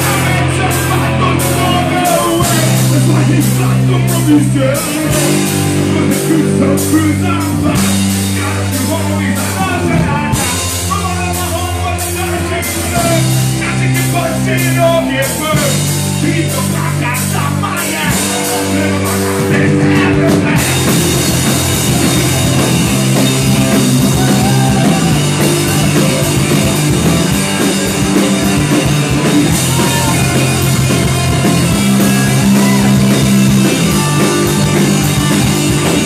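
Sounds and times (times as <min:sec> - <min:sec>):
live punk rock band: 0:00.0 - 0:36.0.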